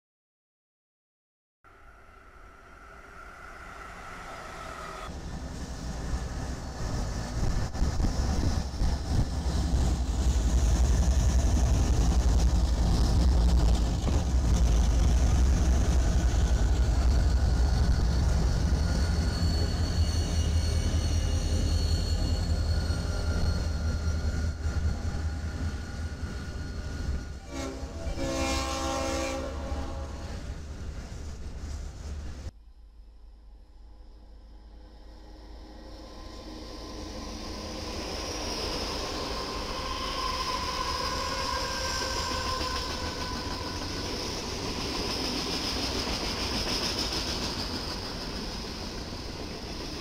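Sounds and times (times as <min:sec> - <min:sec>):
diesel locomotive engine rumble: 0:01.7 - 0:50.0
rail noise: 0:01.7 - 0:50.0
train horn blowing: 0:27.4 - 0:30.5.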